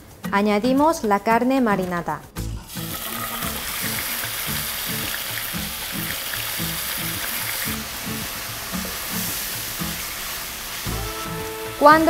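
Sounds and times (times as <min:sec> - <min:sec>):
background music with low beat: 0:00.0 - 0:12.0
beef sizzling in frying pan: 0:02.7 - 0:12.0.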